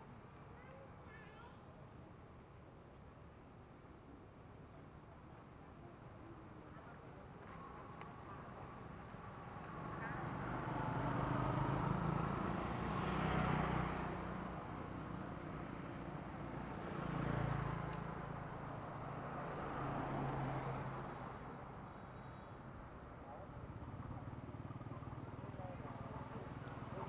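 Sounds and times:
vehicles passing close by: 7.4s - 27.0s.

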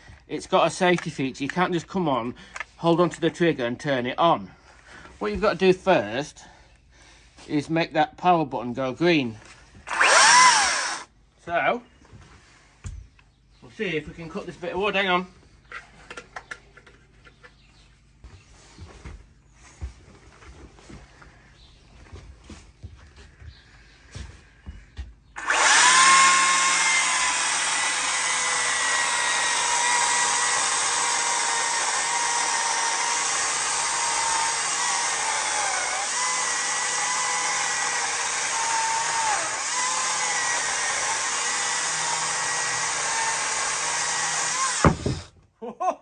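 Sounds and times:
electric chainsaw cutting log: 9.9s - 11.1s, 25.4s - 45.4s.

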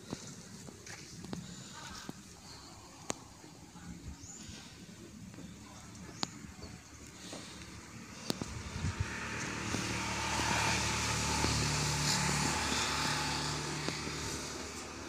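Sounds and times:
passing motor vehicle rumble: 4.4s - 15.0s.

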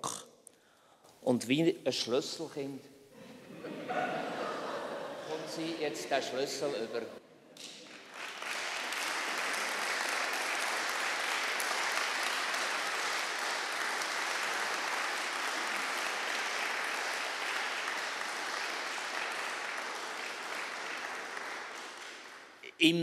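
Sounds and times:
audience applauding: 7.6s - 22.7s.

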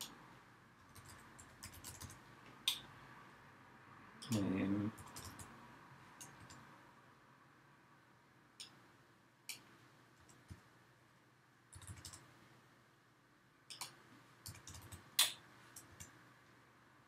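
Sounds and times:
keyboard keystrokes: 5.0s - 5.5s, 11.7s - 12.2s, 13.7s - 16.1s.

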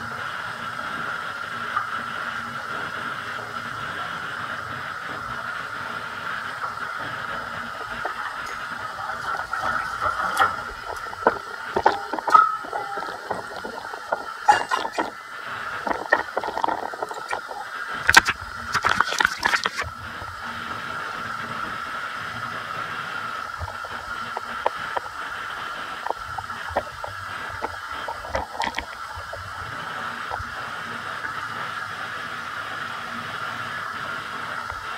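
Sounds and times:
water running with a gurgle: 0.0s - 34.9s.

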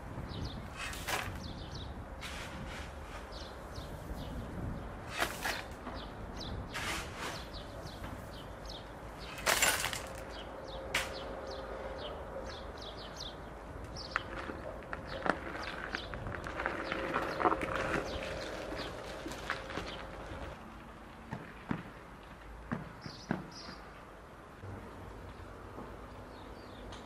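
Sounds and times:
small birds chirping: 0.2s - 20.5s, 23.0s - 24.0s
shovel scraping into gravel: 0.7s - 1.4s, 2.2s - 3.5s, 5.1s - 5.8s, 6.7s - 7.6s, 9.2s - 10.3s
gravel tossed into metal wheelbarrow: 0.8s - 1.4s, 5.1s - 5.8s, 9.2s - 10.4s.

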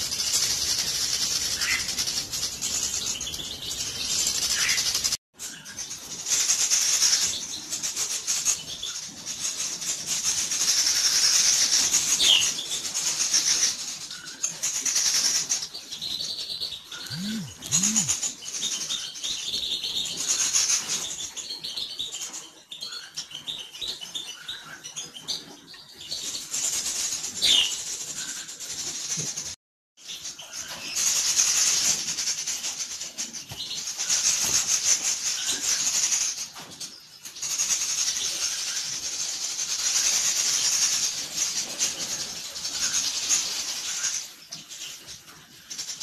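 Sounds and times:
small birds chirping: 0.0s - 46.0s.

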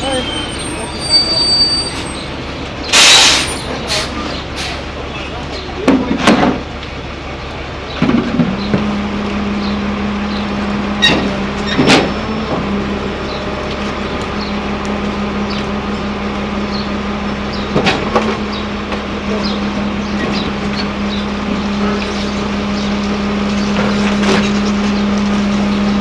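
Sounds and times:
garbage truck engine humming: 0.0s - 26.0s
trash and bins clanking: 5.8s - 6.7s, 10.8s - 12.9s, 17.5s - 21.8s.

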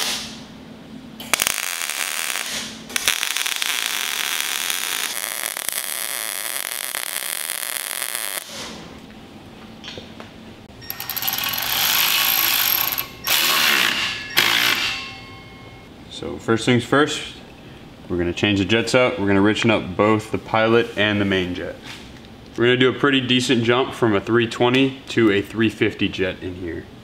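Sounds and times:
welding crackle: 1.2s - 8.8s.

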